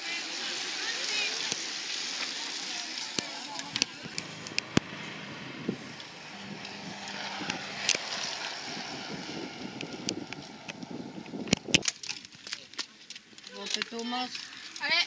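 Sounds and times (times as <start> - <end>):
bicycles passing: 0.0 - 15.0
wind on microphone: 3.7 - 11.9.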